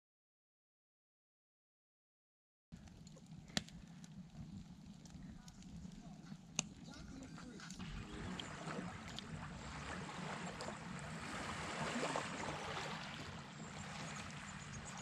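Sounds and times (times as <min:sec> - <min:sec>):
low hum: 0:02.8 - 0:15.0
wind: 0:02.8 - 0:15.0
rushing water: 0:07.8 - 0:15.0.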